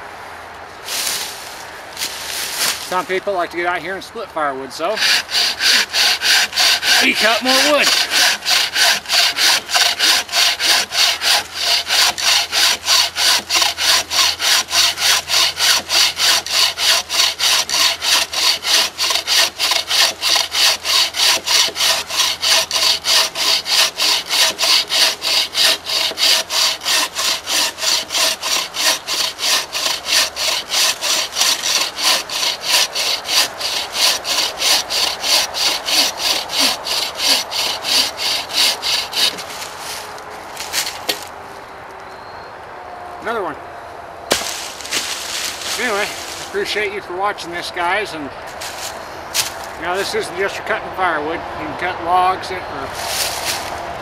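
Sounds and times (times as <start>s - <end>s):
saw rasping through log: 4.9s - 41.3s, 44.3s - 47.9s.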